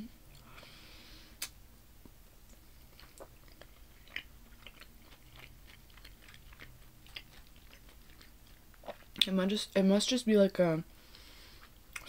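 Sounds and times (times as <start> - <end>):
person chewing food: 1.4 - 9.3, 11.4 - 12.0.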